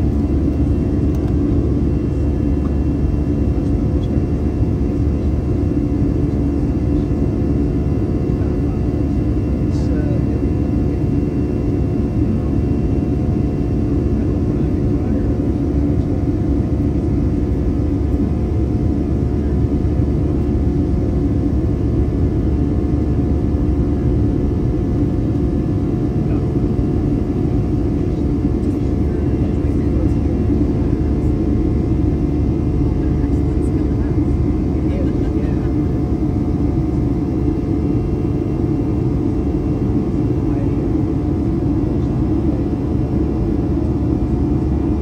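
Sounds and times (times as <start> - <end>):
airliner cabin rumble: 0.0 - 45.0.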